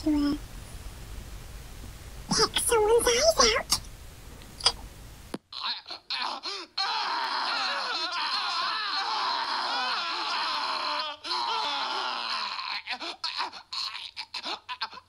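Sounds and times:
man wailing and moaning: 5.5 - 15.0.

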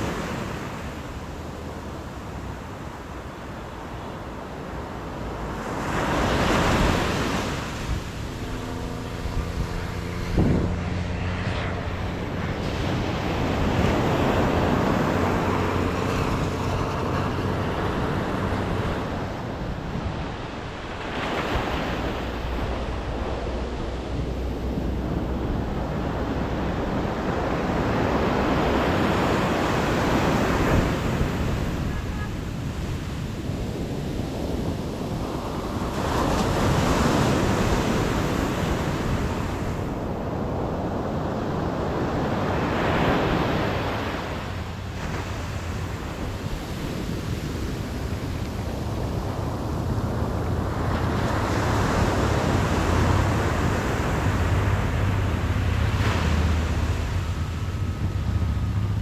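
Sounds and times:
waves breaking on beach: 0.0 - 59.0
wind buffeting microphone: 0.0 - 59.0
low pitched drone: 7.0 - 20.8.

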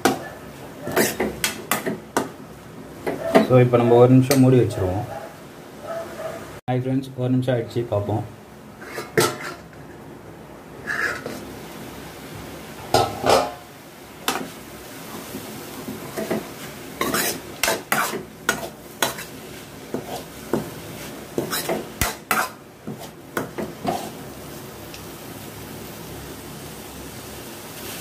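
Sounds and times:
ladle scraping metal pan: 0.9 - 1.9, 8.8 - 9.7, 10.8 - 11.5, 12.9 - 13.6, 16.2 - 20.3.

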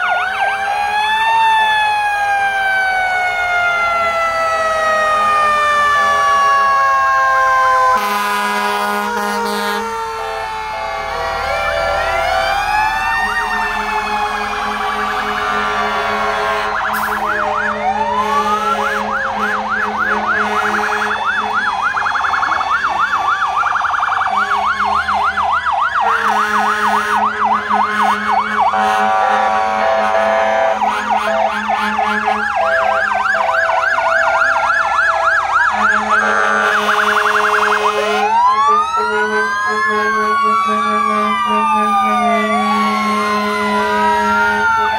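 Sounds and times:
fire engine sirens wailing: 0.0 - 44.9
steady horn tones: 7.9 - 12.0, 13.2 - 21.8, 24.2 - 33.8, 35.7 - 44.9.

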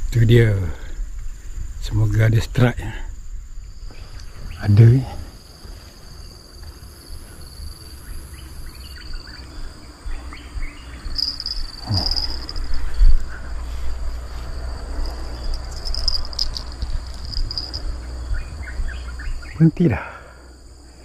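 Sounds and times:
insects chirring: 0.0 - 21.0
low rumble: 8.0 - 19.5.

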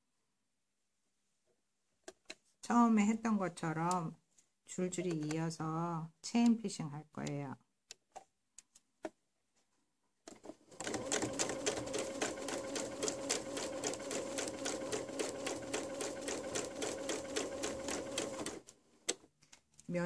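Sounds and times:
sewing machine stitching: 10.3 - 18.6.

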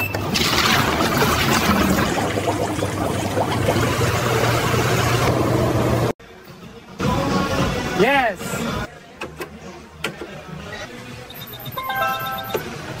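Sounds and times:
washing machine button beep: 0.0 - 0.4, 11.3 - 12.8
washing machine running: 0.0 - 6.2.

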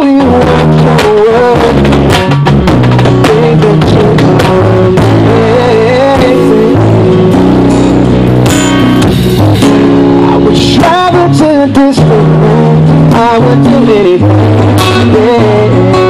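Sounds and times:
person singing: 0.0 - 2.4, 3.0 - 7.5, 10.2 - 16.0
drum kit: 0.0 - 16.0
guitar: 0.0 - 16.0
steady low bass line: 0.0 - 16.0.

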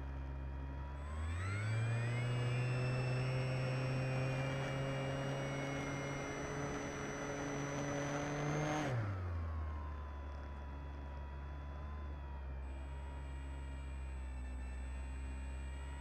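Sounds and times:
model plane motor whining: 1.0 - 9.3.

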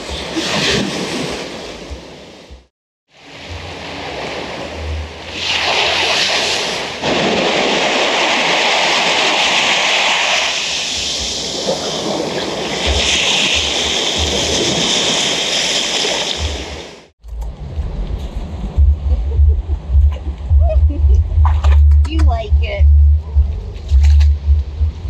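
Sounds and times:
ocean surf washing in: 0.0 - 19.4.

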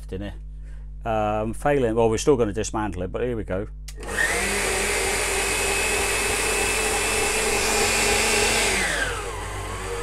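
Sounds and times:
food mixer motor whining: 3.9 - 10.0.

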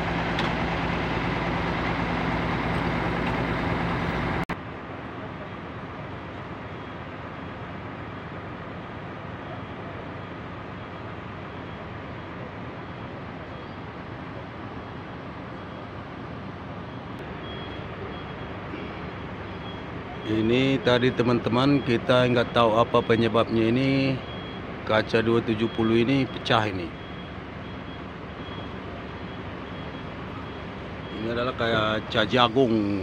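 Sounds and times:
diesel bus engine idling: 0.0 - 33.0.

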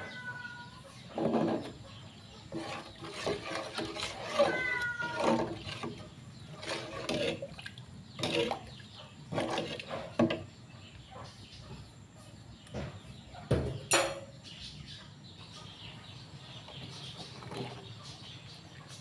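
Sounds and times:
metal ladle scraping a pot: 1.0 - 10.5, 16.7 - 18.0
ladle clinking in pot: 13.9 - 14.4.

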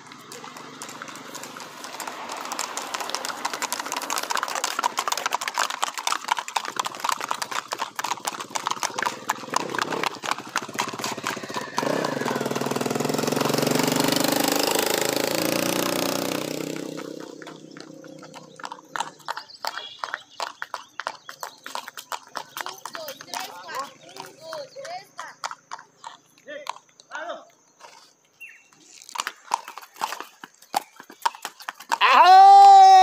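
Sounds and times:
motor vehicle engine: 0.0 - 5.8, 6.8 - 26.0
hooves clip-clopping on asphalt: 0.0 - 33.0.

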